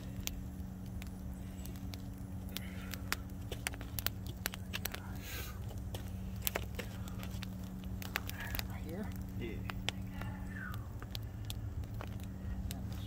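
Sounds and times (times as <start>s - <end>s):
wood fire crackling and popping: 0.0s - 13.0s.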